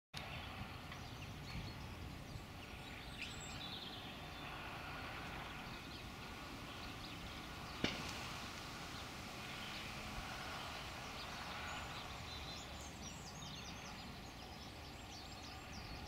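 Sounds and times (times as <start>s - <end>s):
bird chirps: 0.2s - 4.7s, 8.8s - 16.0s
distant tractor rumble: 0.2s - 16.0s.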